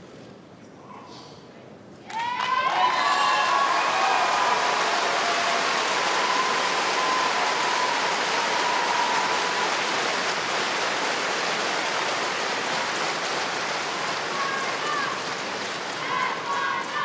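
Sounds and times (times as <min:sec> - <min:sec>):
crowd applauding: 0:02.1 - 0:17.0.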